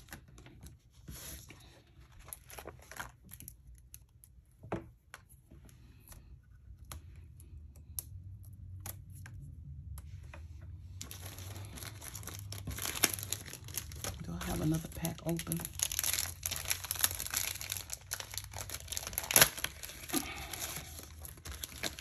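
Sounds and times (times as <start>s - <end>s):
paper crinkling: 0.0s - 4.4s, 11.0s - 22.0s.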